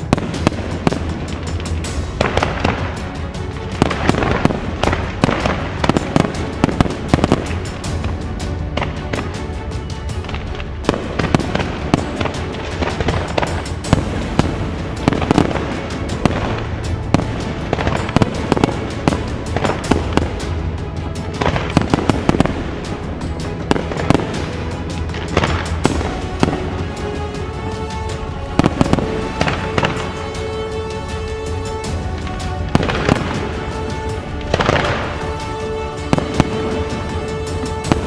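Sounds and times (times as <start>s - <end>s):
fireworks bangs and crackling: 0.0s - 38.0s
music with held tones: 0.0s - 38.0s.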